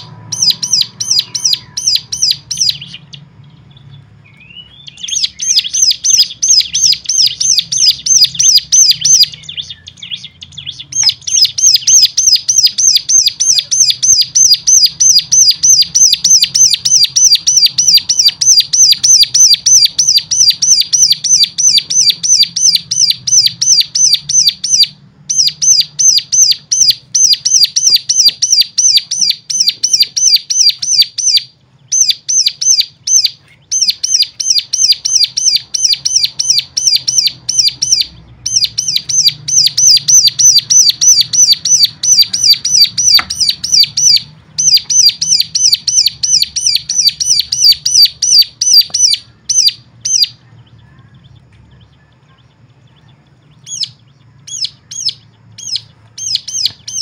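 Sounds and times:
songbird chirping rapidly: 0:00.0 - 0:57.0.

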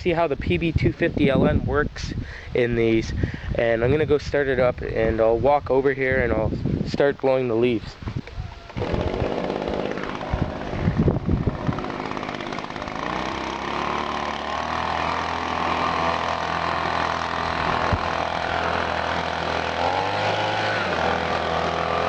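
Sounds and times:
leaf blower engine running: 0:08.7 - 0:22.0.

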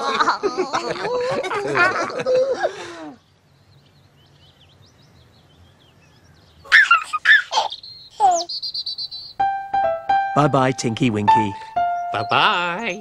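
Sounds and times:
faint birdsong: 0:00.1 - 0:13.0
baby giggling and babbling: 0:06.7 - 0:08.5
person speaking: 0:10.3 - 0:13.0.

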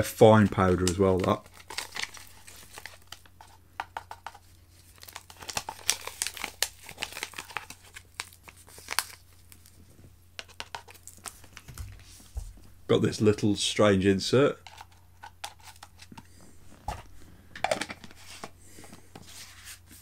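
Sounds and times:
sachet crinkling: 0:00.8 - 0:03.6, 0:04.2 - 0:09.8, 0:10.4 - 0:12.3.

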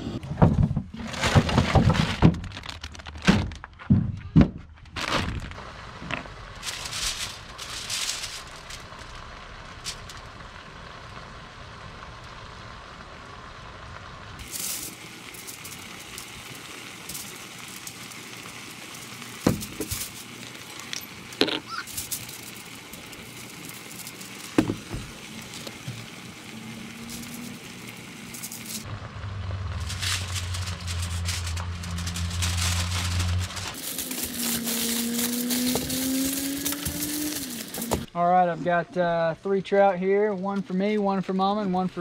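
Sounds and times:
aluminium foil crinkling: 0:01.0 - 0:03.8, 0:04.9 - 0:11.3, 0:14.4 - 0:28.9, 0:29.6 - 0:38.1.

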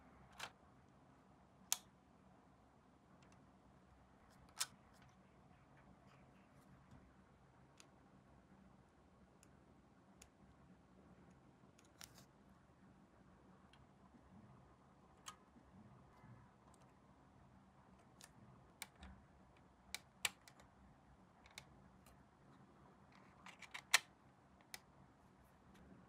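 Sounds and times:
plastic parts clicking: 0:23.1 - 0:24.8.

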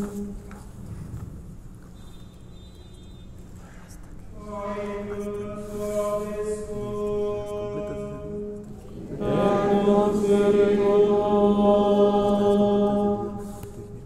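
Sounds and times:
men chanting on held notes: 0:04.4 - 0:13.5.

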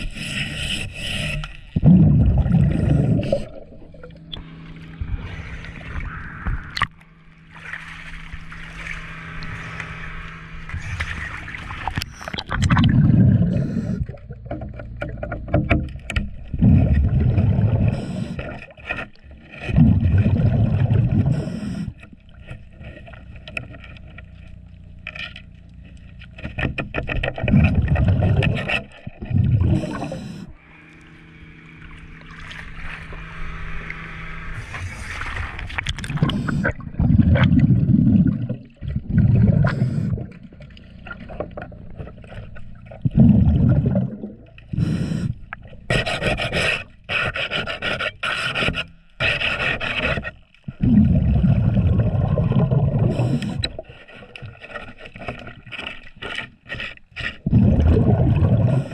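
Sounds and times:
diver breathing through regulator: 0:00.0 - 0:01.6, 0:02.6 - 0:03.7, 0:08.7 - 0:11.3, 0:13.3 - 0:14.2, 0:17.7 - 0:18.6, 0:21.1 - 0:22.1, 0:29.5 - 0:31.0, 0:33.0 - 0:37.2, 0:39.4 - 0:40.4, 0:44.7 - 0:49.8, 0:53.0 - 0:54.3, 0:58.4 - 0:58.9
exhaled bubbles rumbling: 0:01.6 - 0:24.9, 0:26.6 - 0:46.5, 0:50.6 - 0:55.8, 0:57.4 - 0:58.9.

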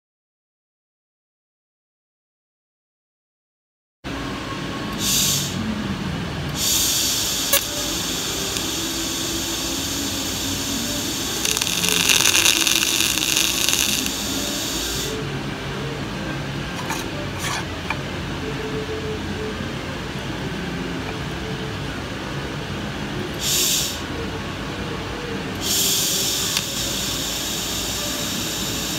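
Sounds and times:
welding arc hiss: 0:06.6 - 0:15.2, 0:23.4 - 0:24.1, 0:25.6 - 0:28.9.

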